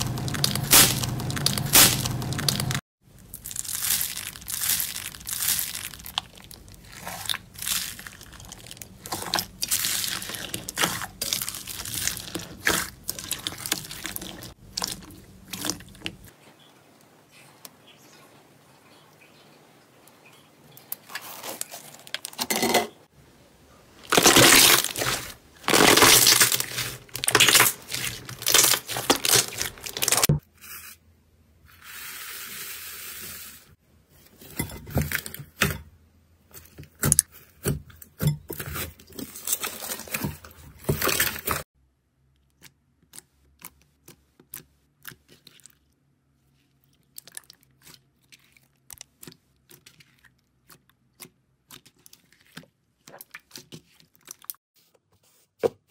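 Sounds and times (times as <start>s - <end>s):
slime squelching and popping: 0.0s - 16.3s, 24.0s - 30.3s.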